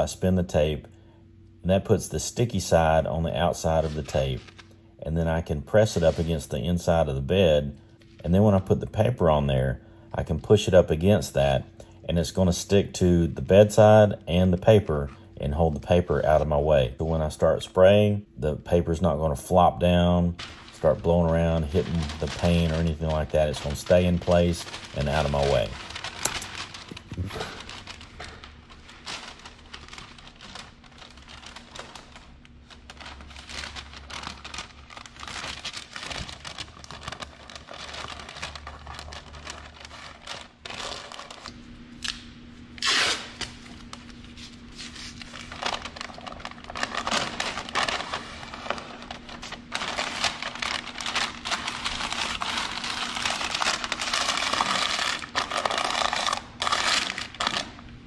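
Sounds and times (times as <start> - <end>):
paper crinkling and rustling: 2.2 - 9.4, 19.5 - 41.7, 42.6 - 58.0.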